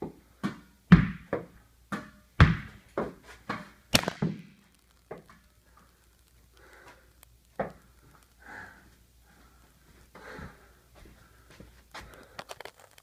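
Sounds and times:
tennis ball being hit: 0.4s - 4.5s
heavy breathing: 5.6s - 12.8s
phone handling clicks and rustles: 12.1s - 13.0s.

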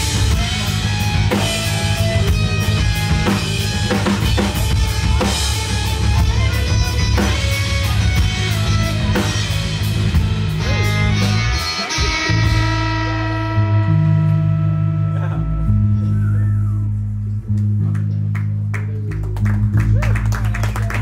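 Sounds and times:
drum kit: 0.0s - 21.0s
electric bass: 0.0s - 21.0s
electric guitar: 0.0s - 21.0s.

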